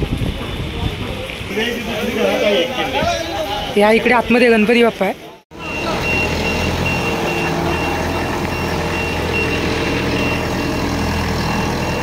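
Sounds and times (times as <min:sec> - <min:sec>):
engine rumble: 0:05.5 - 0:12.0
reversing alarm beeping: 0:05.6 - 0:12.0.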